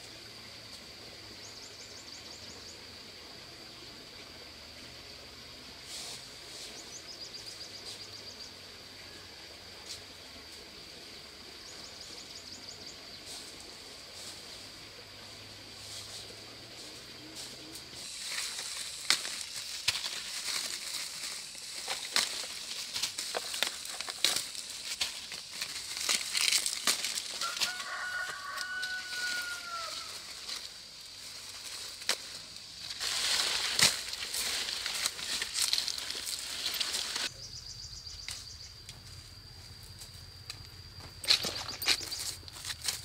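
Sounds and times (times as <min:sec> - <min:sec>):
rustling and crackling: 0:17.4 - 0:37.3
rooster crowing: 0:27.3 - 0:30.3.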